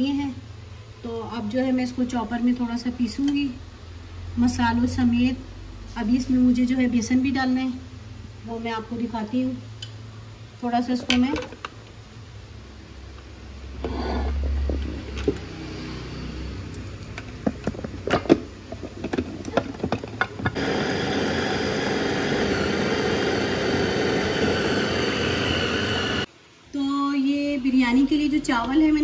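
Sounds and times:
food chopper motor grinding: 20.5 - 26.3.

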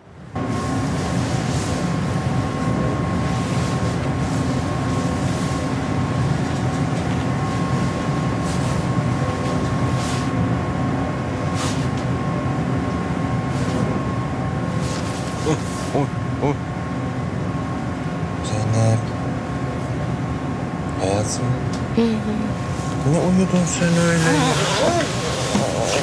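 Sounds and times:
constant hum tones: 0.0 - 26.0
cable car mechanical rumble: 0.6 - 18.7.

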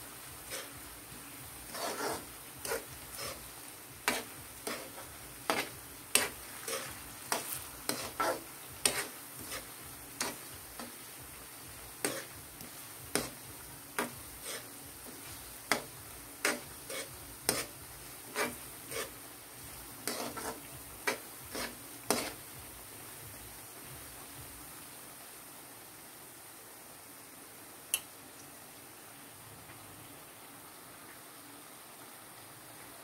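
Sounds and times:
food deep-frying in oil: 0.0 - 33.0
ladle scraping a wok: 0.4 - 0.8, 1.7 - 11.0, 12.0 - 13.4, 14.0 - 19.2, 20.0 - 22.4.

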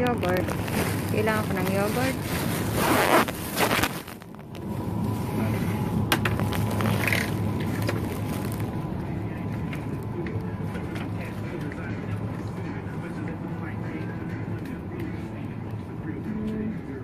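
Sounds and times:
shopping cart wheels rattling: 0.0 - 2.8
steady background hum: 0.0 - 17.0.

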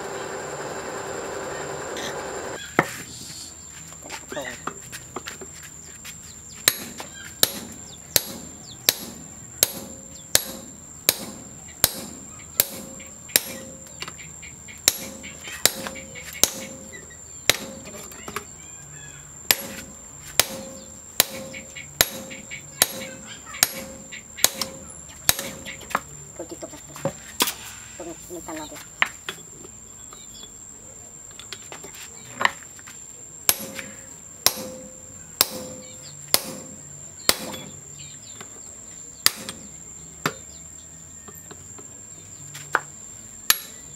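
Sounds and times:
hammer blows ringing on steel: 6.7 - 13.9, 14.8 - 18.0, 19.5 - 25.8, 33.5 - 37.8, 39.2 - 39.7, 43.5 - 43.9.

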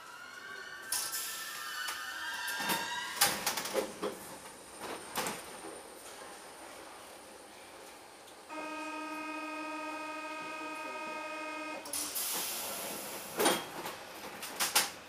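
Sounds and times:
train door warning buzz: 8.5 - 11.9.

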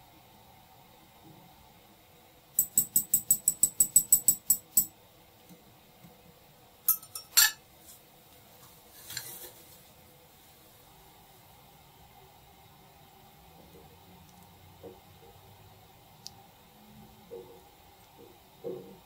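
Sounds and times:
metal spoon clinking against bowl: 2.6 - 4.9, 6.9 - 7.6
spoon scraping bowl: 9.0 - 9.6.

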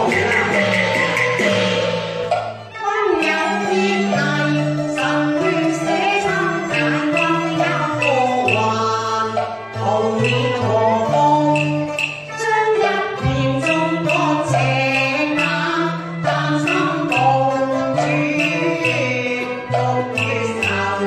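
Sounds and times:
instrumental accompaniment: 0.0 - 21.0
regular clicking beat: 0.0 - 21.0
woman singing opera: 2.9 - 11.6.

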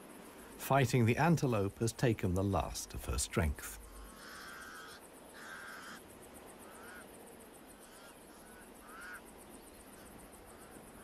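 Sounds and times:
crows cawing: 3.8 - 7.2, 7.8 - 9.3.

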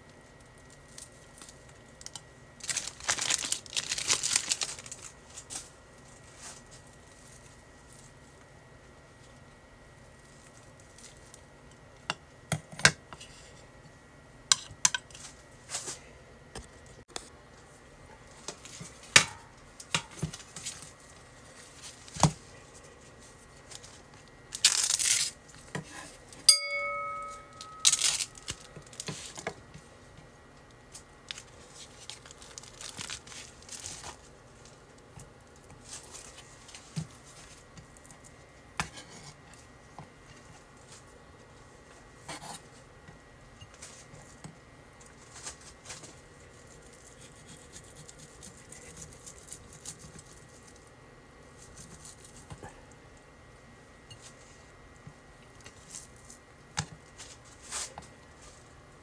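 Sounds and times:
plastic wrap ripping: 0.6 - 5.6, 24.5 - 25.4, 27.8 - 29.4, 31.3 - 34.3
short ringing clink: 26.5 - 28.2.

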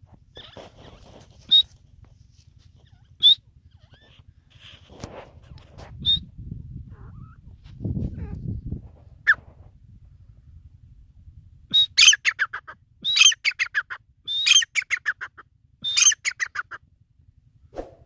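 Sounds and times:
francolin calling: 2.8 - 4.2, 11.7 - 16.8
low rumble: 17.3 - 18.0.

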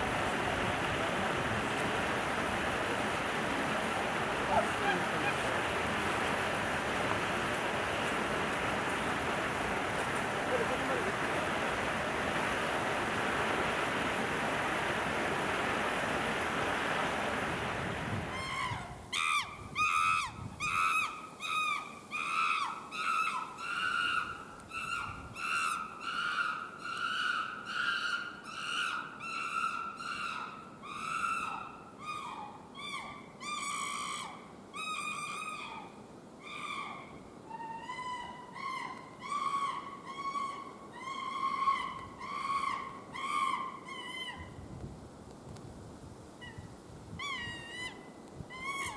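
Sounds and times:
animal calling: 3.2 - 11.6.

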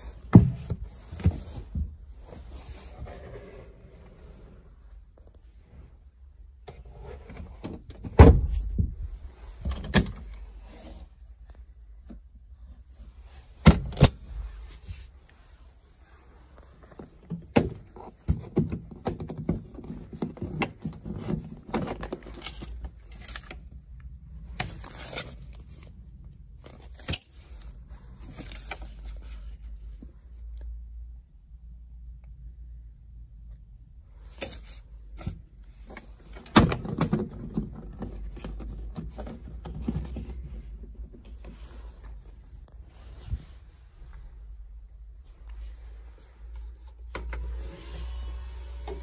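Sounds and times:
knocks and thumps of tools: 0.2 - 2.0.

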